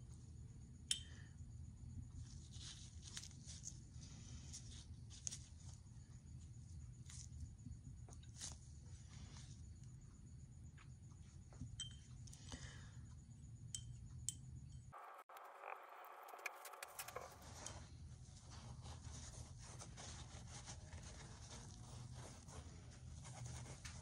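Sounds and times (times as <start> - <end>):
brush rustling on paper towel: 17.1 - 24.0.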